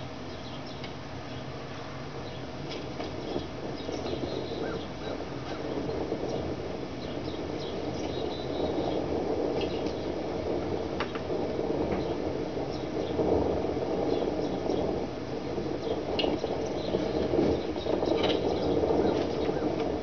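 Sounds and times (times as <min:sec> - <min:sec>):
steady rushing hiss: 0:00.0 - 0:20.0.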